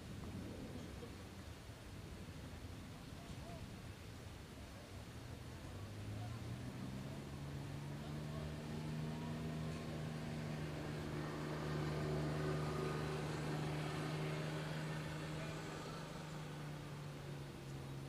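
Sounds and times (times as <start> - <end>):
distant kart engines droning: 5.3 - 18.0.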